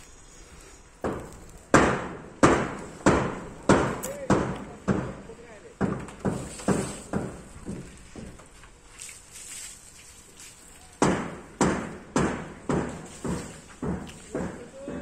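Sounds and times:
footsteps thudding: 5.8 - 8.6, 11.1 - 15.0.

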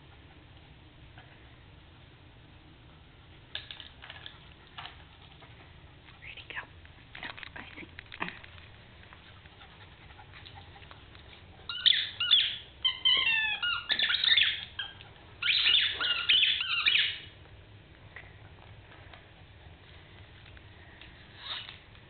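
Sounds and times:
squeaky dog toy squeaking: 11.7 - 17.3.

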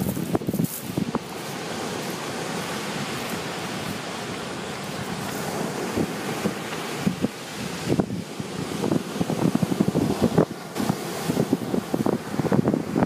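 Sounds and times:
ocean surf washing: 0.0 - 13.0
wind rushing over microphone: 0.0 - 13.0.

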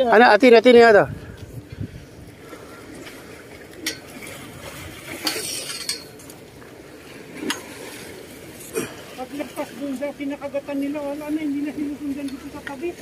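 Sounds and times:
metallic clinks on steel railing: 5.2 - 6.2.

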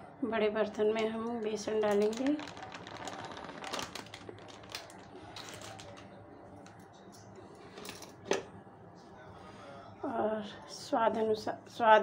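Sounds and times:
plastic packet crinkling: 0.7 - 6.8.

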